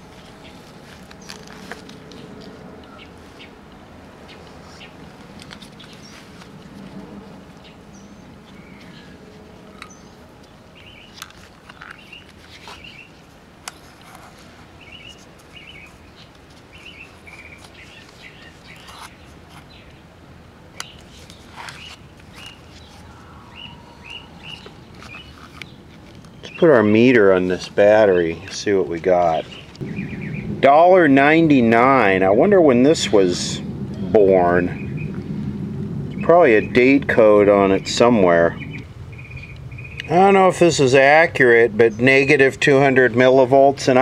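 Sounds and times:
small birds chirping: 0.1s - 3.6s, 4.2s - 6.5s, 7.5s - 13.2s, 13.8s - 20.1s, 20.8s - 31.0s, 34.0s - 35.3s, 36.0s - 41.2s.

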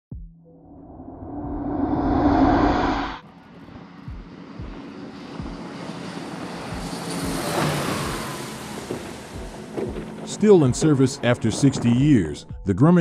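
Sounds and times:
loud swell: 0.6s - 3.2s
turboprop engines and propellers: 0.6s - 12.0s.

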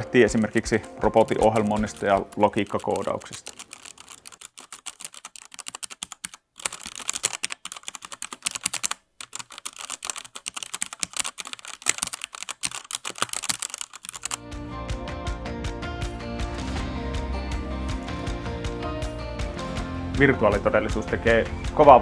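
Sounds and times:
music: 0.0s - 2.8s, 14.3s - 22.0s
rapid keyboard typing: 0.2s - 14.4s.

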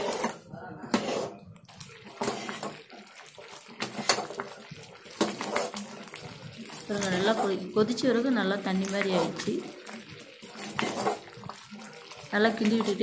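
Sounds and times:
spoon knocking and scraping pan: 0.0s - 8.0s, 8.7s - 11.8s, 12.5s - 13.0s
thick jam slopping: 8.7s - 13.0s.

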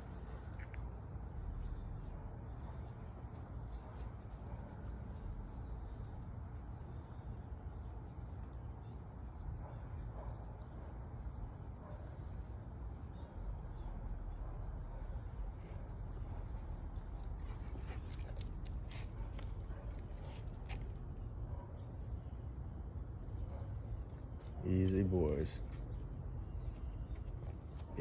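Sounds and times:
insects trilling: 0.0s - 21.4s
low constant rumble: 0.0s - 28.0s.

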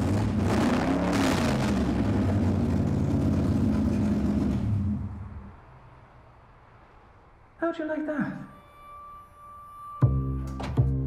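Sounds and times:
loud car engine running: 0.0s - 5.6s.

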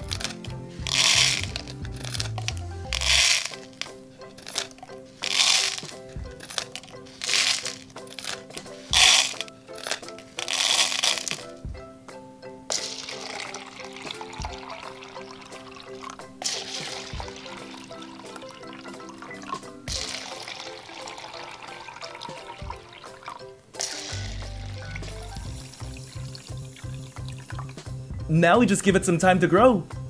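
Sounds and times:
plastic sachets crinkling: 0.0s - 11.5s, 16.0s - 18.6s, 19.9s - 20.8s
scissors cutting plastic: 0.0s - 11.5s
beads tipped into plastic cups: 0.0s - 11.6s, 12.7s - 23.0s, 23.8s - 27.8s
background music: 0.0s - 30.0s.

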